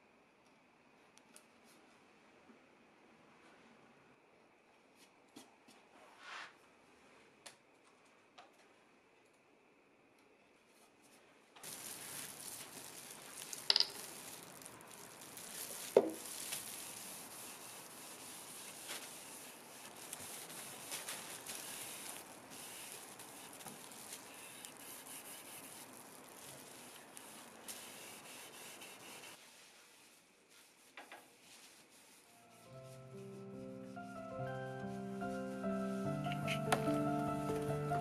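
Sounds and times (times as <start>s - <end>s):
dry wiping on wood: 14.2s - 37.6s.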